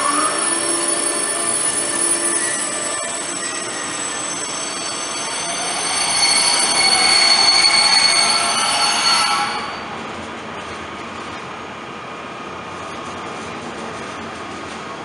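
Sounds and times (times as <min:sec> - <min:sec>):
high steady tones: 0:00.0 - 0:09.9
train rolling past: 0:00.0 - 0:15.0.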